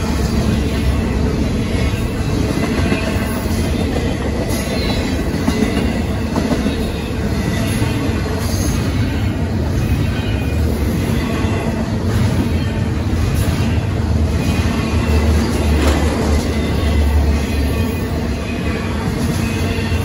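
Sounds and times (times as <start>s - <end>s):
freight train wheels rumbling on rails: 0.0s - 20.0s.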